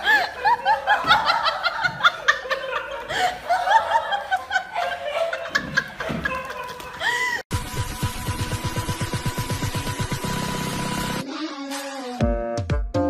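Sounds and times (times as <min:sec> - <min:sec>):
people laughing: 0:00.0 - 0:07.4
music with steady beat: 0:11.8 - 0:13.0.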